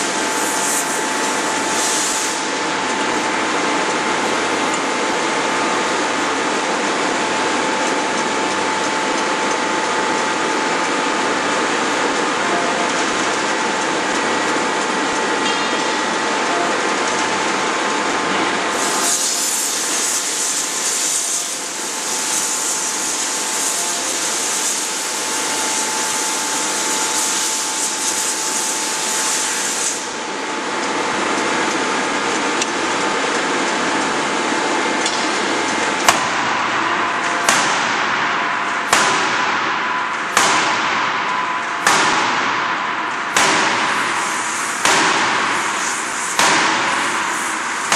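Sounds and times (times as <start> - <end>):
machinery humming: 0.0 - 47.9
hiss: 1.7 - 2.5, 18.7 - 30.1
forging hammer blows ringing: 38.8 - 44.0.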